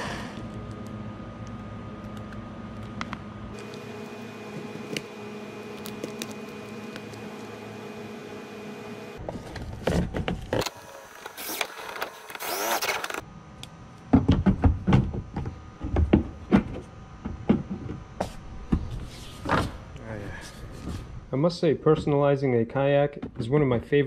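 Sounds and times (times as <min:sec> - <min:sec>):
cordless drill driving screws: 0:10.7 - 0:13.2.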